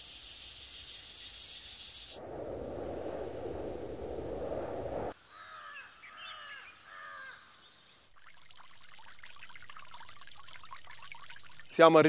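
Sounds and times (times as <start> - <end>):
sprinkler spraying water: 0.0 - 2.2, 8.1 - 11.9.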